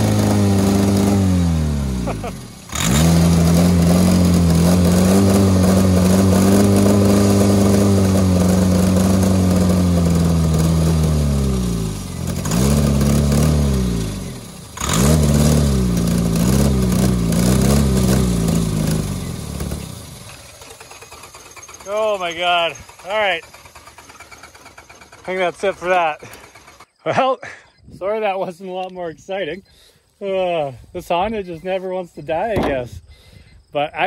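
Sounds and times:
car engine running unevenly: 0.0s - 26.8s.

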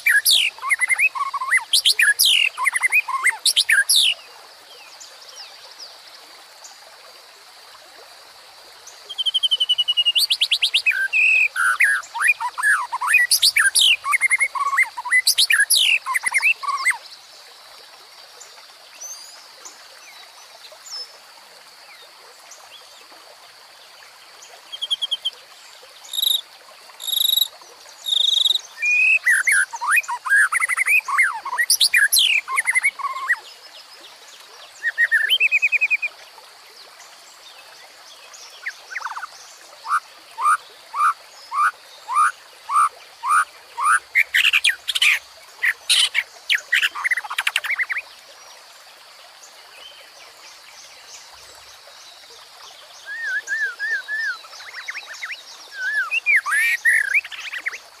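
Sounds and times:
stream rushing over rocks: 0.0s - 5.4s, 6.0s - 58.0s
songbirds singing: 0.0s - 5.6s, 8.9s - 17.1s, 27.0s - 36.2s, 37.5s - 48.2s, 49.4s - 58.0s.

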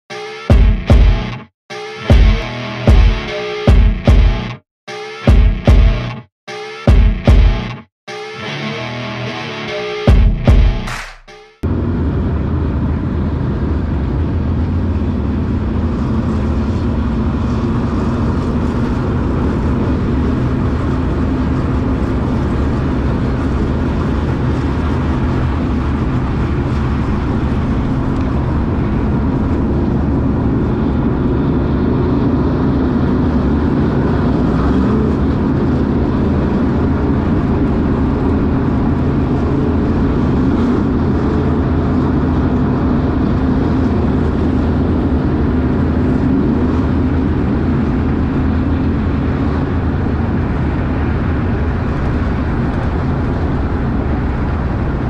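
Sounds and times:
race car engines running: 11.7s - 55.0s.

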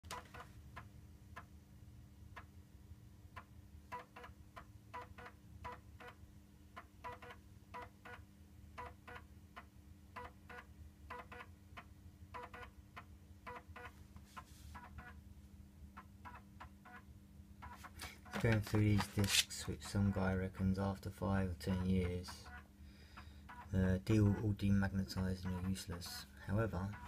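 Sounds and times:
steady low hum: 9.4s - 27.0s.

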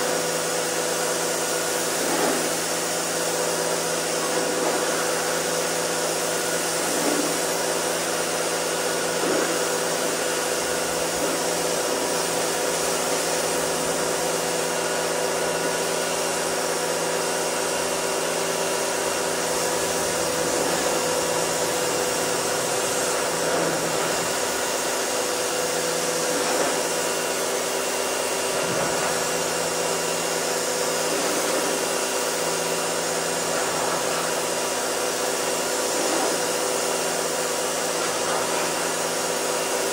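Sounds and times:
pressure washer running: 0.0s - 39.9s
water spray hiss: 1.8s - 3.6s, 18.9s - 25.2s, 30.9s - 32.0s.

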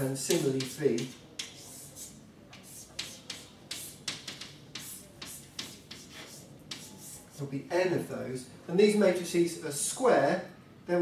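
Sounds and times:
chalk writing on a blackboard: 0.0s - 7.5s.

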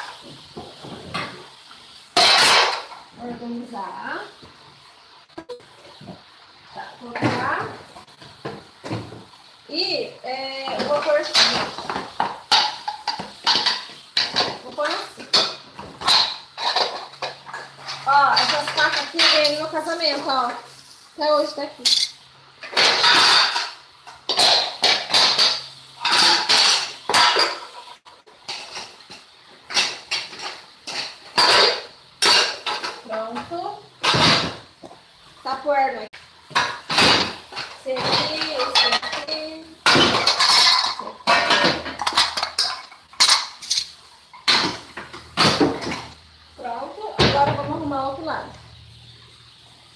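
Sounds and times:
pots and lids clattering: 0.0s - 3.3s, 7.0s - 9.4s, 10.5s - 20.7s, 21.8s - 35.0s, 36.4s - 46.2s.

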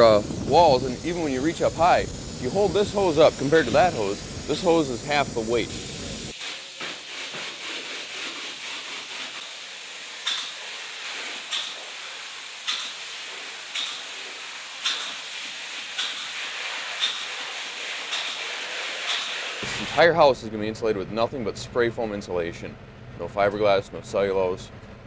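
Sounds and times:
spray foam gun hissing: 0.0s - 20.0s.

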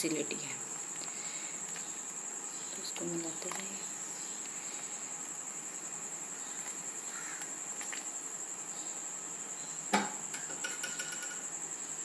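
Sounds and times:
crickets trilling: 0.0s - 12.0s
sharp knock: 9.9s - 11.4s.

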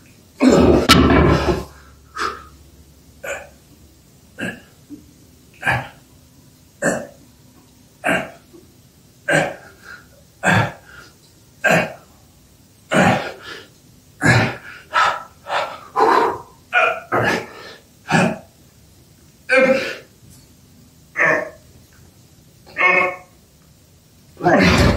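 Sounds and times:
man breathing and grunting: 0.4s - 2.6s, 9.3s - 12.1s, 12.9s - 18.4s, 19.5s - 20.1s.

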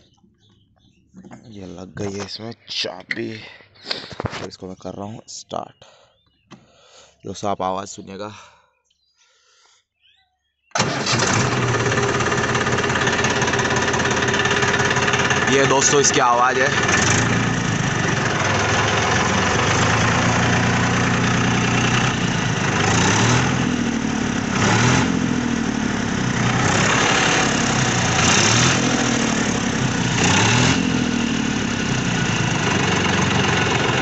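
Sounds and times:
tractor diesel engine idling: 10.8s - 34.0s.

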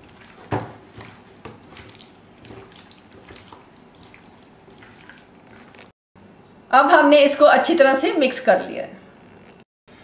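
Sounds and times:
hands squelching wet marinade: 0.0s - 5.9s.

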